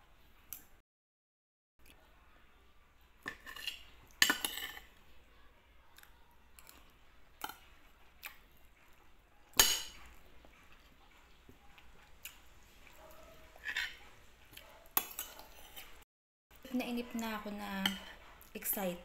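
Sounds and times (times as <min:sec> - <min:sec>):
cutlery clinking on a plate: 0:03.2 - 0:04.9, 0:09.5 - 0:10.2, 0:13.6 - 0:14.0.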